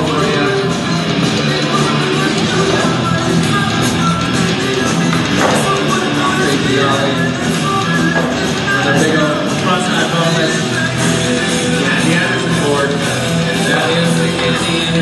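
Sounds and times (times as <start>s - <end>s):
rock music with guitar: 0.0s - 15.0s.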